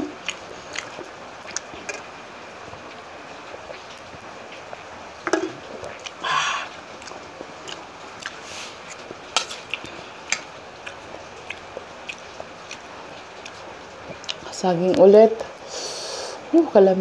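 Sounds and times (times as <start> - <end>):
person chewing: 0.0 - 2.1, 5.4 - 14.5
breathy burst of noise: 6.2 - 6.8, 15.6 - 16.5.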